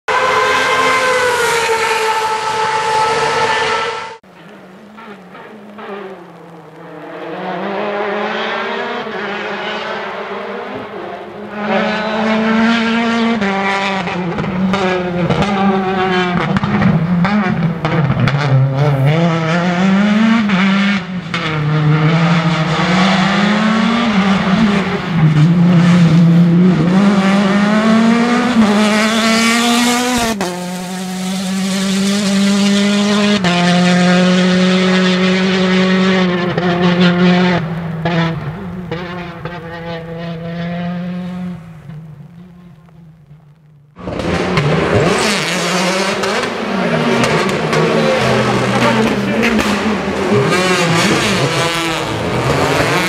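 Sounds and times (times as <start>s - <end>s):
rally car engine revving: 0.1s - 53.0s.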